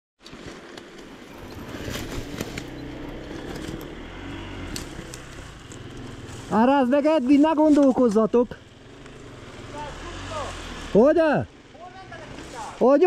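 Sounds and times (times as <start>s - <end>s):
motorcycle engine running: 0.6s - 13.0s
sharp clicks and knocks: 0.7s - 4.0s.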